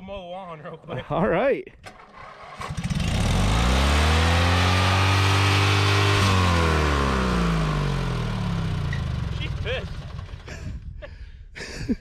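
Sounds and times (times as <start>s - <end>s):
lawnmower engine revving: 1.8s - 10.6s.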